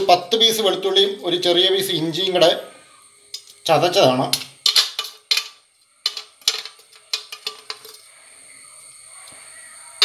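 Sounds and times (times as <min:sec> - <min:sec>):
faint steady hum: 0:00.0 - 0:10.0
spoon clinking metal bowl: 0:04.4 - 0:08.1.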